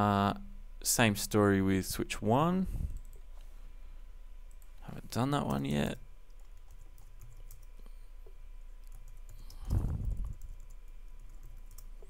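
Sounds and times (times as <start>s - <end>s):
short low rumble: 9.6s - 10.5s.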